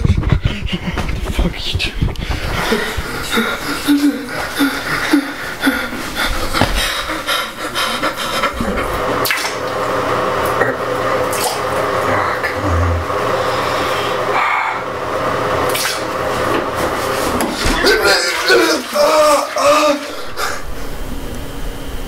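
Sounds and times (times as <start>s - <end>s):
wordless vocal noises: 0.0s - 9.2s
man urinating into toilet: 2.1s - 13.9s, 15.7s - 20.8s.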